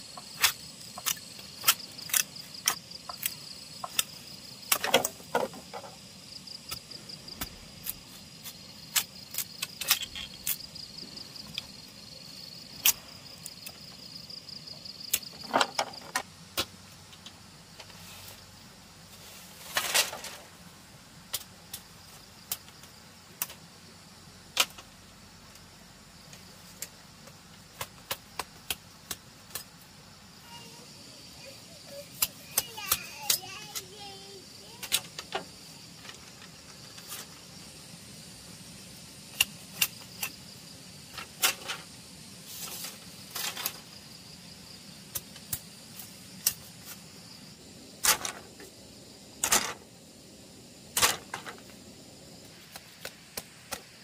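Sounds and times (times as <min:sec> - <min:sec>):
insect trilling: 0:00.0 - 0:16.2, 0:27.8 - 0:54.0
scrape or rustle: 0:17.8 - 0:20.6, 0:36.0 - 0:37.5, 0:41.2 - 0:44.0
sharp clicks and knocks: 0:49.4 - 0:49.8.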